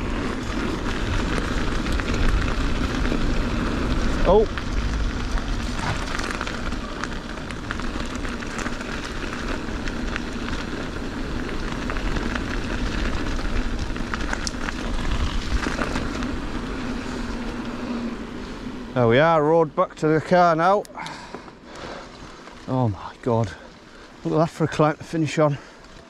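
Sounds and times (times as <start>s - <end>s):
wind rumble on microphone: 0.0s - 19.3s
bike clicks and rattles: 0.0s - 26.0s
bike tyre noise: 0.0s - 26.0s.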